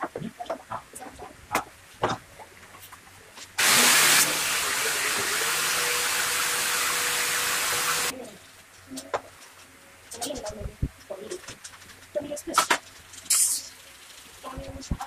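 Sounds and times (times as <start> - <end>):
pressurised gas hissing: 3.6 - 8.1.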